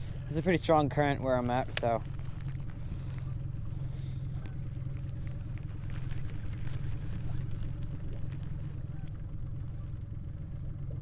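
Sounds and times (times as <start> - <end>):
outboard motor idling: 0.0 - 11.0.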